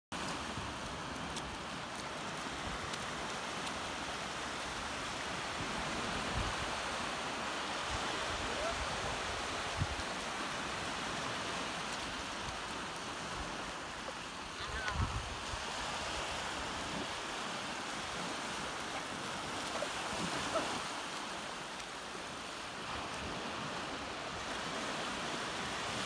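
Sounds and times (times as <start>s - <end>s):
waves washing onto shore: 0.2s - 26.0s.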